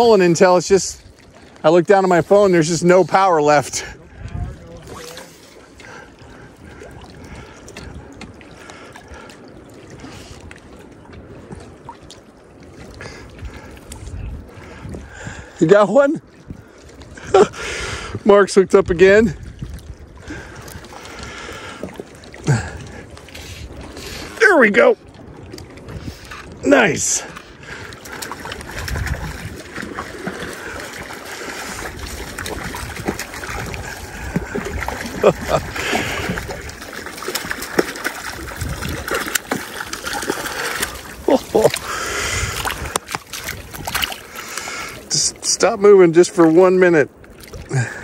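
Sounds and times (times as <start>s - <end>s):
small waves lapping on rocky shore: 0.0s - 48.0s
wind rumbling on microphone: 3.6s - 45.4s
fish thrashing and splashing: 4.8s - 15.6s, 19.4s - 24.4s, 27.2s - 45.6s, 46.4s - 48.0s.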